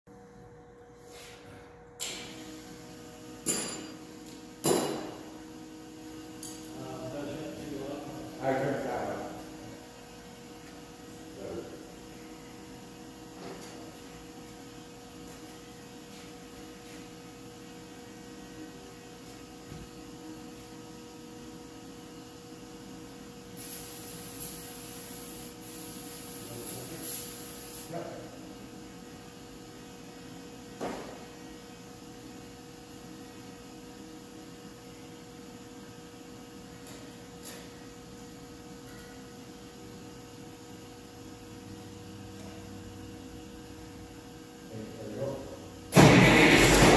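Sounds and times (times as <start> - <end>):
electrical mains hum: 0.1 - 46.9
hiss: 23.6 - 28.0.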